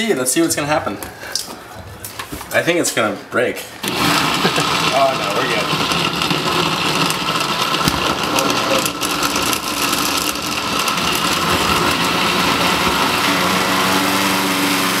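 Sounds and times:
blender motor running: 0:03.8 - 0:15.0.

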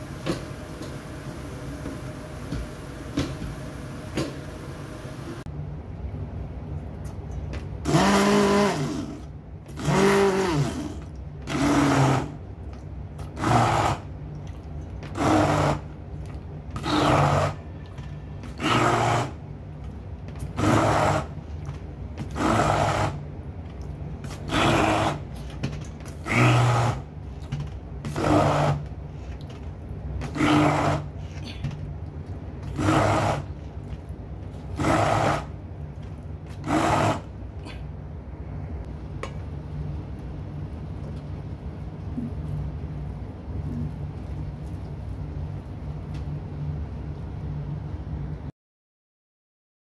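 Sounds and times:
low steady hum: 0:00.0 - 0:11.6, 0:25.2 - 0:48.5
immersion blender grinding: 0:07.8 - 0:12.4, 0:13.2 - 0:14.1, 0:15.0 - 0:15.9, 0:16.7 - 0:17.7, 0:18.4 - 0:19.4, 0:20.4 - 0:21.4, 0:22.2 - 0:23.3, 0:24.3 - 0:25.4, 0:26.0 - 0:27.1, 0:28.0 - 0:28.9, 0:30.2 - 0:31.2, 0:32.6 - 0:33.6, 0:34.6 - 0:35.6, 0:36.5 - 0:37.4.

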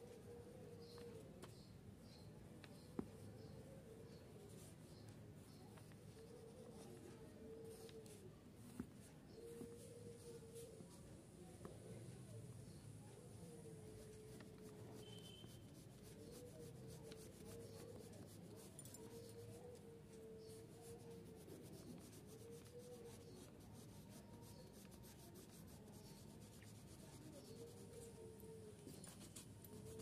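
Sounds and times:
pencil scratching on paper: 0:13.8 - 0:28.2, 0:28.9 - 0:30.0.

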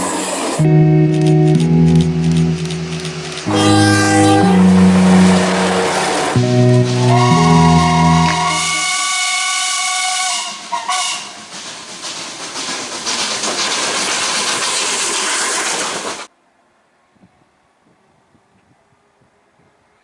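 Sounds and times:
loud hiss of steam: 0:00.0 - 0:00.6, 0:08.8 - 0:16.3
steam locomotive whistle: 0:03.5 - 0:11.4.

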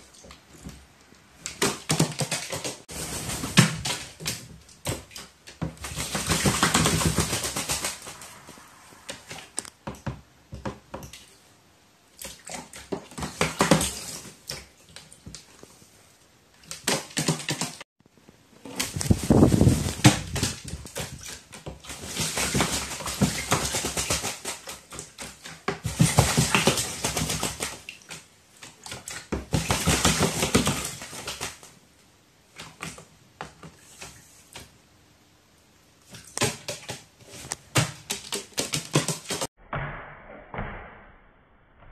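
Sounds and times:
bird splashing in water: 0:01.4 - 0:09.6.

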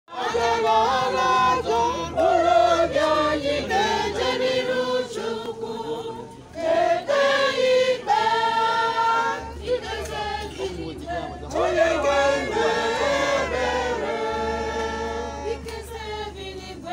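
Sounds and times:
choir singing a hymn: 0:00.1 - 0:16.9.

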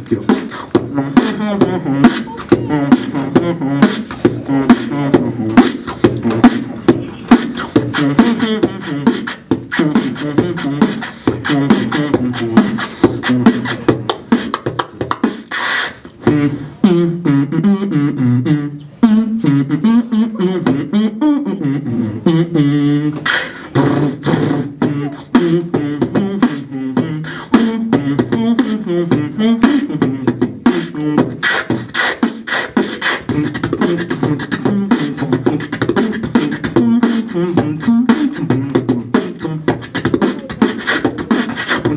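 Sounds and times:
hummed melody: 0:00.0 - 0:14.5
beatboxing into a microphone: 0:00.0 - 0:41.9.

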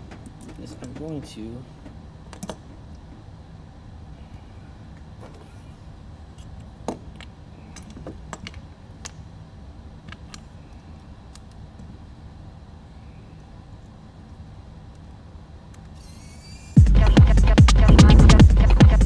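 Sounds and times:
hand tools clicking and tapping: 0:00.0 - 0:03.3
steady low hum: 0:00.0 - 0:19.0.

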